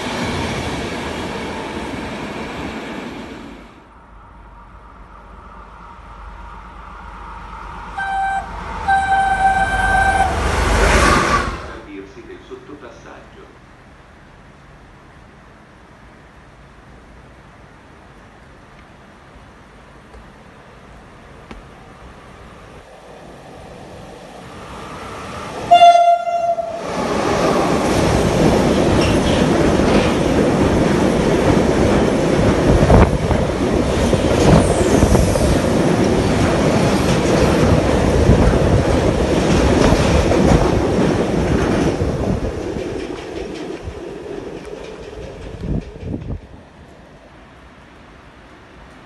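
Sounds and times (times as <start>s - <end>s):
train rushing past: 0.0s - 49.0s
train horn blast: 8.0s - 11.6s, 25.7s - 26.8s
train wheels knocking: 35.8s - 46.5s.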